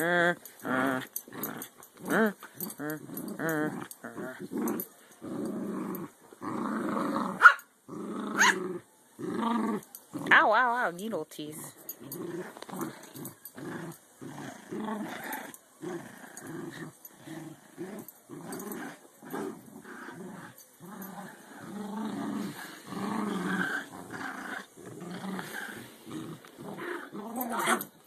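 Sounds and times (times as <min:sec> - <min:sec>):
dogs play-growling: 0:00.0 - 0:10.4, 0:11.7 - 0:28.0.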